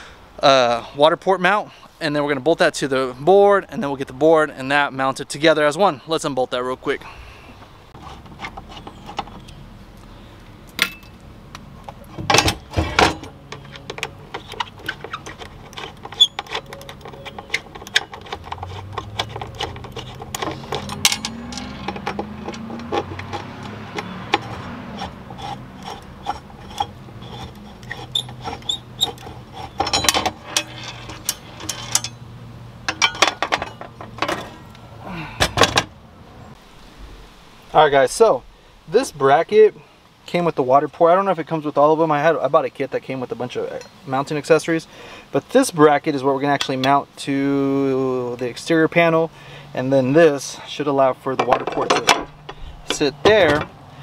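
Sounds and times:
tools and bolts clinking: 10.7s - 11.2s, 11.8s - 34.8s, 51.4s - 53.8s.

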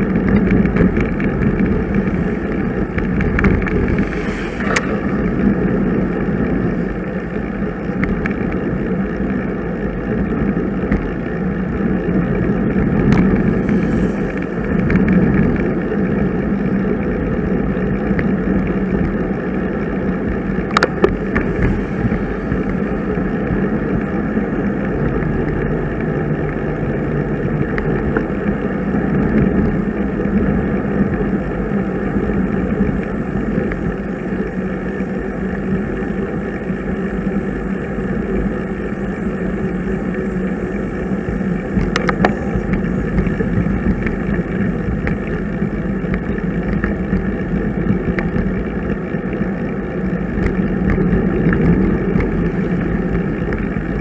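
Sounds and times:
wind rush: 0.0s - 8.3s, 12.2s - 16.3s, 20.0s - 25.1s
bicycle tyre noise: 0.0s - 54.0s.

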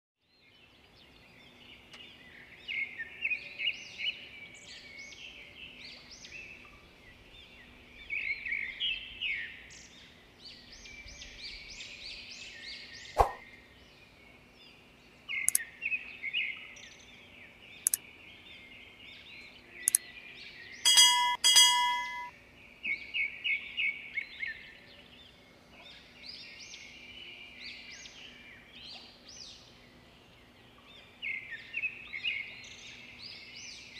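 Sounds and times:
small birds chirping: 0.2s - 33.9s
brief ringing tone: 20.9s - 22.3s.

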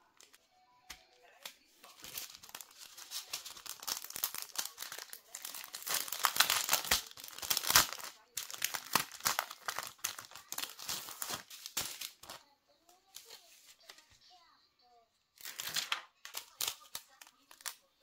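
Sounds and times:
plastic bags crinkling: 1.8s - 12.4s, 15.4s - 17.9s.

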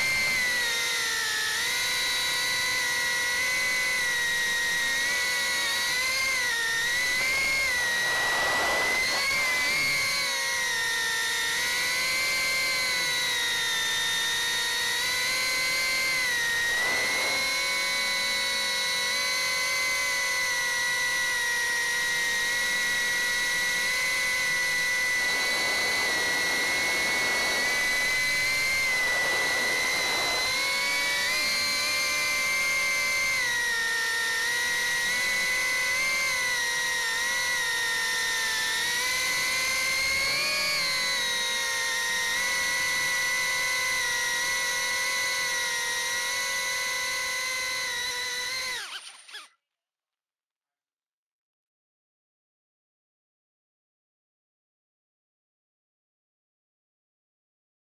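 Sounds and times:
drone motors whining: 0.0s - 49.5s.

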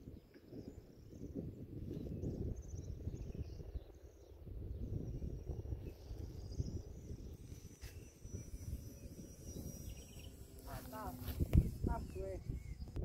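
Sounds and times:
wind rumbling on microphone: 0.0s - 13.0s
faint high chirping: 0.1s - 13.0s
thin high whine: 4.2s - 13.0s.

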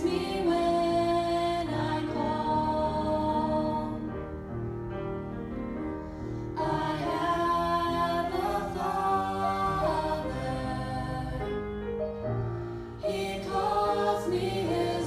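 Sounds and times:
vocal trio singing in harmony: 0.0s - 4.2s, 6.4s - 11.8s, 12.7s - 15.0s.

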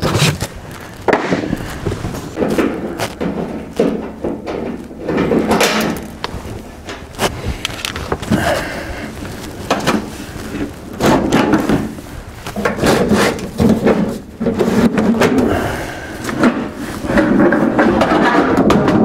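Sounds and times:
sheet metal knocking and scraping: 16.3s - 19.0s.

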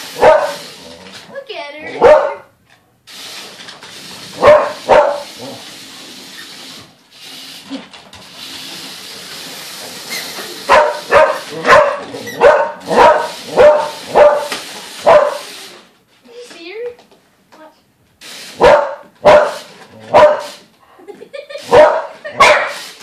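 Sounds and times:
dog barking: 0.2s - 0.6s, 1.9s - 2.5s, 4.4s - 5.3s, 10.7s - 15.4s, 18.6s - 20.6s, 21.7s - 22.8s.

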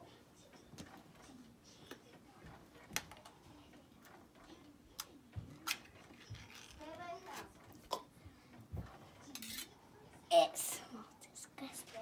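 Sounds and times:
metal spoon: 9.3s - 9.8s.

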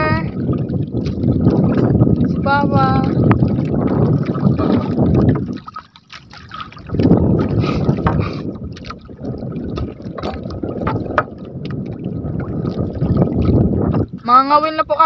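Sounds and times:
water lapping around boat: 0.0s - 15.0s
wind buffeting microphone: 0.0s - 15.0s.

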